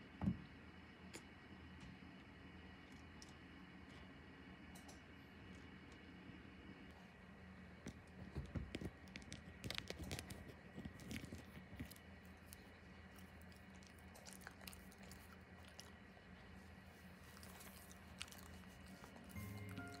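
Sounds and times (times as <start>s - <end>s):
raccoon chewing on object: 8.7s - 20.0s.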